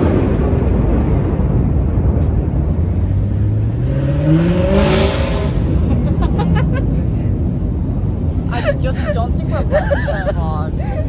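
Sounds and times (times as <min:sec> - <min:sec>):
steady low rumble: 0:00.0 - 0:11.0
car accelerating past: 0:02.7 - 0:08.3.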